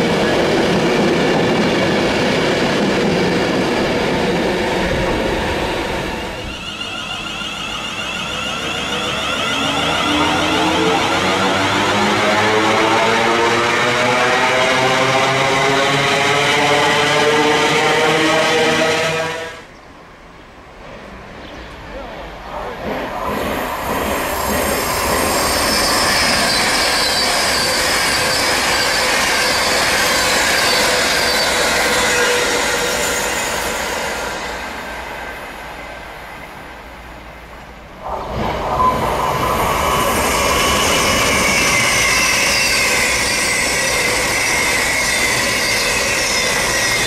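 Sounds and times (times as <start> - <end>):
diesel train running past: 0.0 - 47.0
electric train passing at speed: 0.0 - 47.0.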